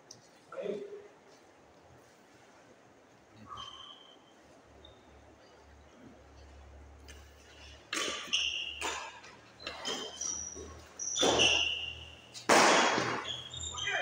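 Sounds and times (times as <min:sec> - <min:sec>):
shoes squeaking on court floor: 0:03.4 - 0:14.0
racket hitting shuttlecock: 0:07.8 - 0:13.5.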